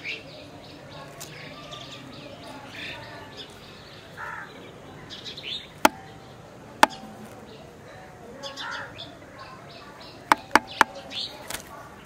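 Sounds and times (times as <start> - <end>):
birds chirping: 0.0 - 12.0
sharp ringing clicks: 6.8 - 7.4, 10.3 - 11.0.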